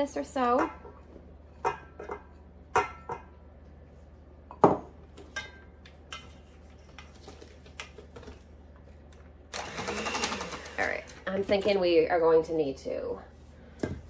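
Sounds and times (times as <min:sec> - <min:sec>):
kitchenware clinking and knocking: 0:01.6 - 0:03.3.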